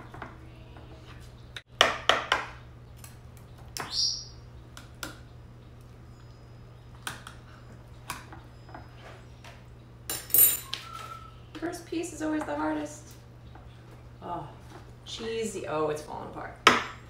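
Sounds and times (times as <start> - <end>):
metal clinking on glass: 10.1 - 10.7.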